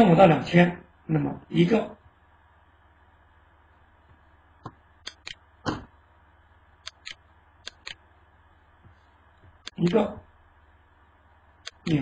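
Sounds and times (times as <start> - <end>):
computer mouse clicking: 4.6 - 5.4, 6.8 - 8.0, 11.6 - 12.0.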